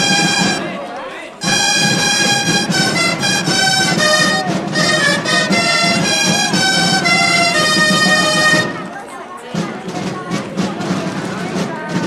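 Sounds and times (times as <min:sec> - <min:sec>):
low accompaniment: 0:00.0 - 0:00.8, 0:01.4 - 0:12.0
reedy wind instrument melody: 0:00.0 - 0:09.0.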